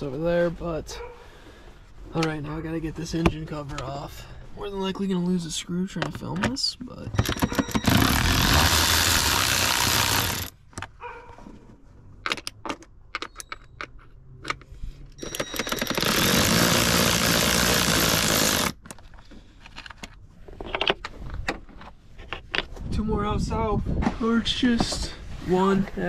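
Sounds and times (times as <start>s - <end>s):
tool clicks and metallic knocks: 6.0s - 8.6s.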